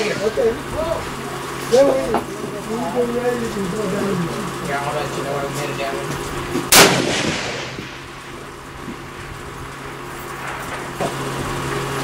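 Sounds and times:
rifle shot echoing: 6.7s - 8.3s.

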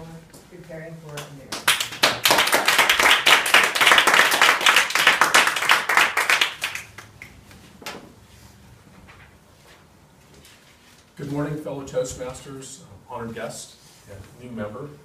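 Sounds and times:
audience clapping: 1.5s - 7.4s.

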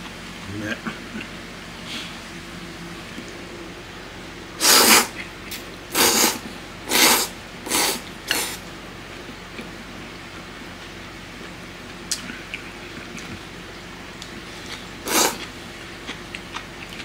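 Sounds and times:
person slurping noodles: 4.6s - 5.2s, 5.9s - 8.6s, 15.0s - 15.5s.

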